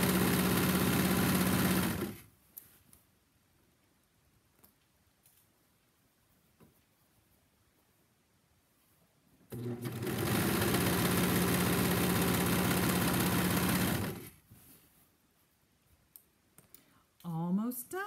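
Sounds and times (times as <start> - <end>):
overlock sewing machine stitching: 0.0 - 2.3, 9.5 - 14.4.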